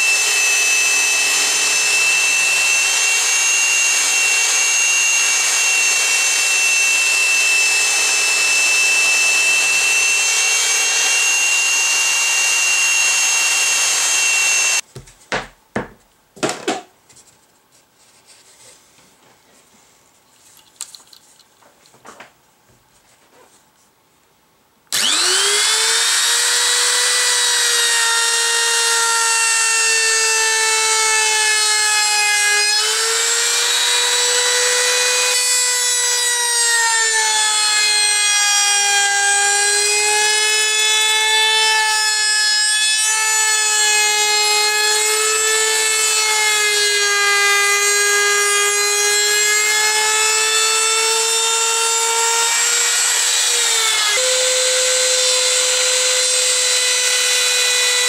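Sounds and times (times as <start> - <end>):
router cutting wood: 0.0 - 14.8, 24.9 - 58.0.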